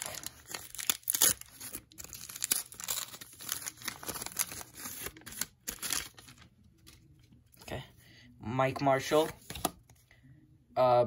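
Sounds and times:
paper wrapper tearing and crinkling: 0:00.0 - 0:07.0.

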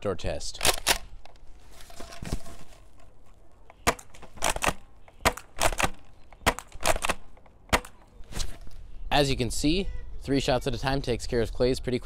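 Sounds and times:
airsoft shotgun pumping and firing: 0:00.6 - 0:01.2, 0:03.7 - 0:08.0.

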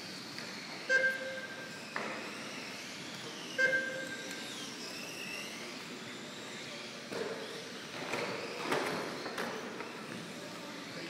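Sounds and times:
rc car motors whining: 0:00.0 - 0:11.0
loud electronic beeps: 0:00.9 - 0:01.8, 0:03.5 - 0:04.4.

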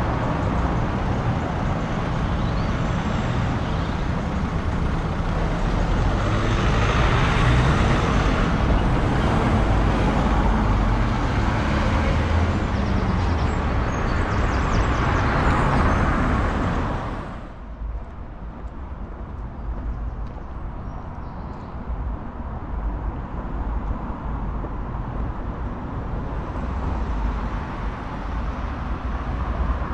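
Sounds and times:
vehicle engine running close by: 0:00.0 - 0:17.6
road noise: 0:00.0 - 0:29.9
street background: 0:00.0 - 0:29.9.

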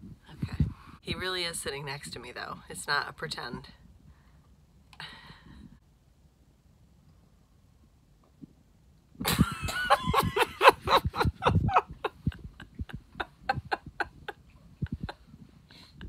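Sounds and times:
woman laughing loudly: 0:09.2 - 0:16.0.

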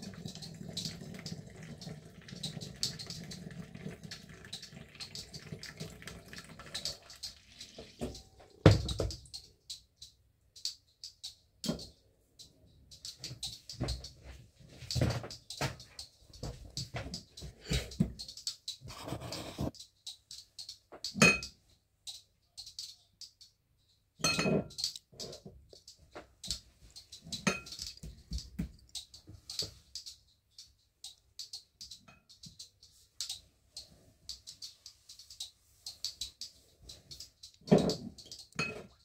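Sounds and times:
glass bottles clinking: 0:38.6 - 0:38.9.

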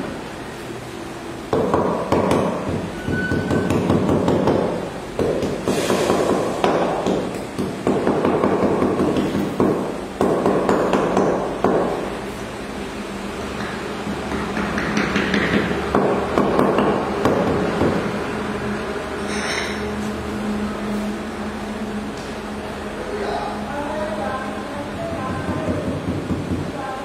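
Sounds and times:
hammer handle tapping tiles: 0:13.6 - 0:17.4.

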